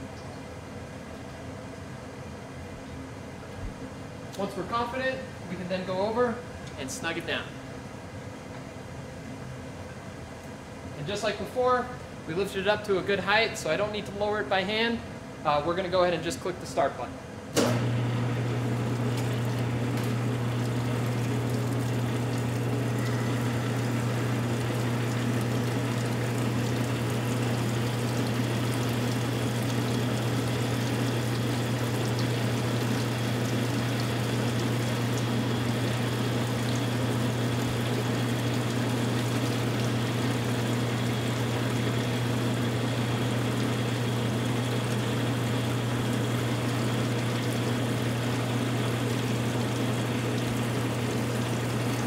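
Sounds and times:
bandsaw motor hum: 0:17.6 - 0:52.0
coolant flowing: 0:17.6 - 0:52.0.

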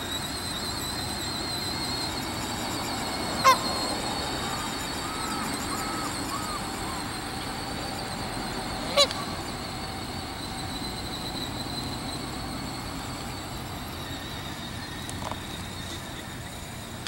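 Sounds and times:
outdoor background noise: 0:00.0 - 0:17.0
goose honking: 0:03.4 - 0:03.9, 0:08.9 - 0:09.4.

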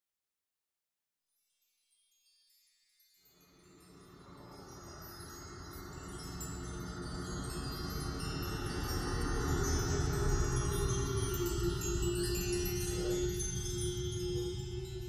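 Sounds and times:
tinkling wind chimes: 0:01.4 - 0:15.0
low musical layer: 0:03.8 - 0:15.0.

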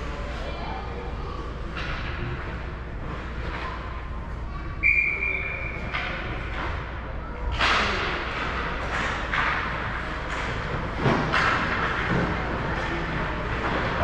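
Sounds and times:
murmur of ice rink: 0:00.0 - 0:14.0
referee's whistle: 0:04.8 - 0:05.8.

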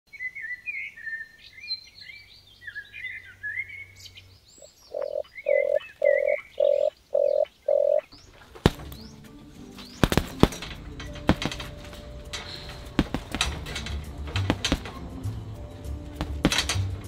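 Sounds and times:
birds chirping and twittering: 0:00.1 - 0:17.0
dove cooing: 0:04.9 - 0:08.1.

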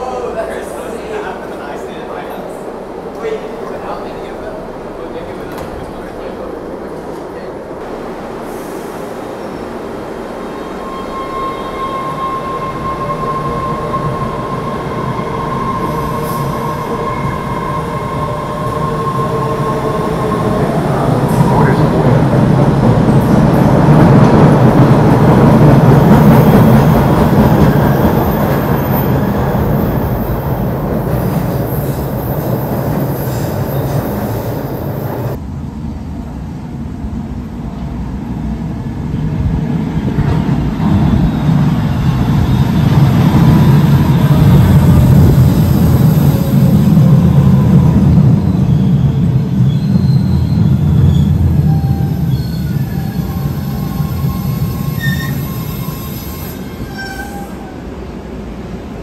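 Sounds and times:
train rumbling on track: 0:00.0 - 0:59.0
train wheels squealing: 0:10.4 - 0:21.8, 0:26.5 - 0:30.5, 0:31.1 - 0:35.4, 0:40.7 - 0:57.8.

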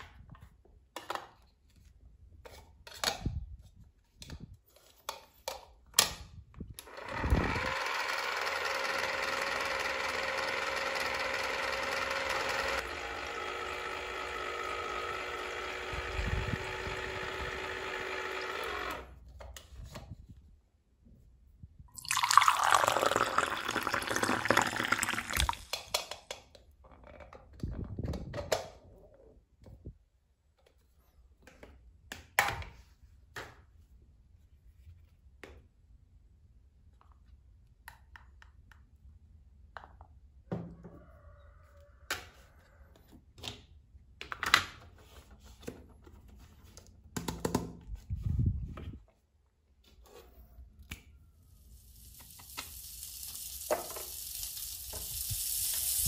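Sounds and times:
liquid pouring into plastic cup: 0:21.9 - 0:25.8.

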